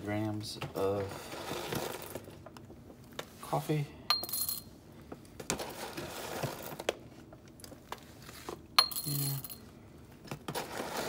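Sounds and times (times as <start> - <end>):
coffee beans rattling into glass jar: 8.8 - 9.6.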